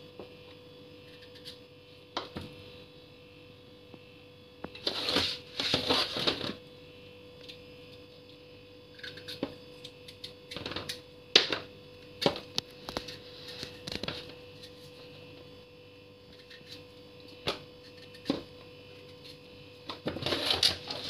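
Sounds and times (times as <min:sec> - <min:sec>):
steady hum: 0:00.0 - 0:21.0
knife scraping pumpkin rind: 0:04.8 - 0:06.4.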